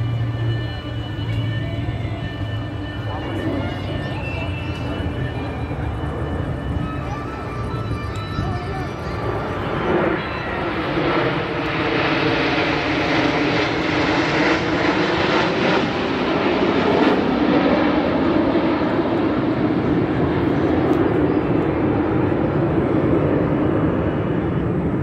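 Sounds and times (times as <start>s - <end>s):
jets flying past: 8.6s - 25.0s.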